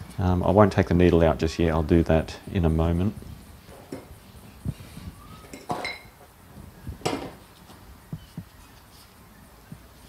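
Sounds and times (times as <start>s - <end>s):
metal parts clinking on workbench: 5.5s - 6.2s.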